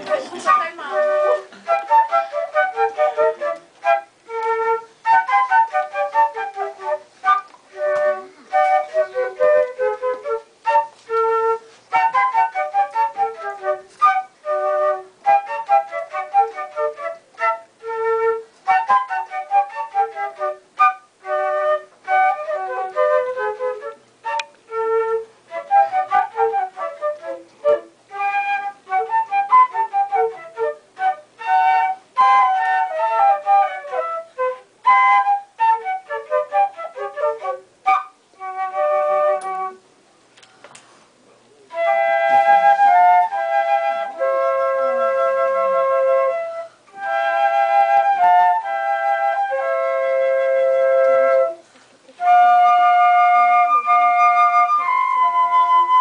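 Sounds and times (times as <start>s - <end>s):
flute playing melody: 0.0s - 39.9s, 41.7s - 56.0s.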